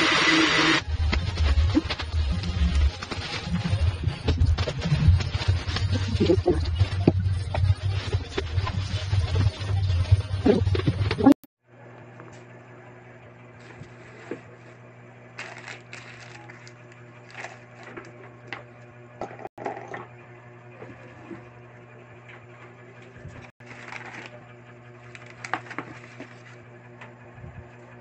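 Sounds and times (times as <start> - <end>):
low hum: 0.8 - 28.0
plastic wrapping crinkling: 13.6 - 14.7, 15.4 - 18.1, 23.6 - 24.4.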